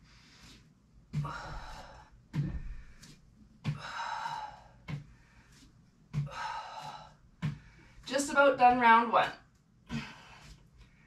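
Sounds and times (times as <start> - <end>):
person breathing hard: 0.0 - 8.1.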